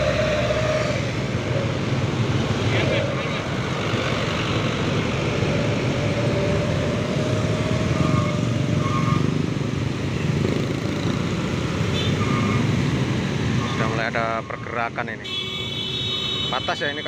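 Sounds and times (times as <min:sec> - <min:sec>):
bus engines idling: 0:00.0 - 0:12.4.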